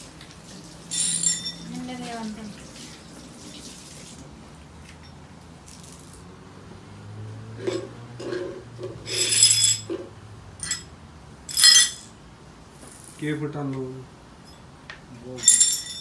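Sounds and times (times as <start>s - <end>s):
glass shards clinking: 0.9s - 1.8s, 7.6s - 10.9s, 11.5s - 12.2s, 15.4s - 16.0s
broom brushing on tiled floor: 7.6s - 10.0s.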